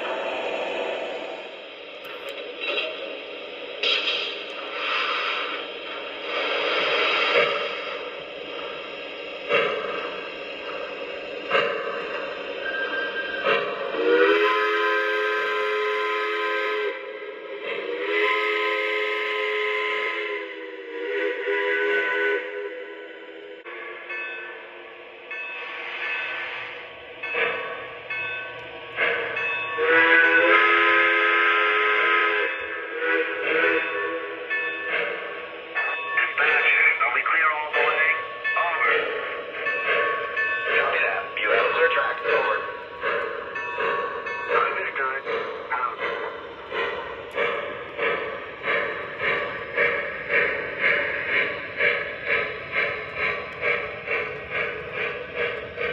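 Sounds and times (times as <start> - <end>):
model train steam hissing: 0.0 - 24.7, 25.6 - 55.9
steam whistle blast: 14.0 - 17.1, 17.8 - 23.0, 29.8 - 34.4.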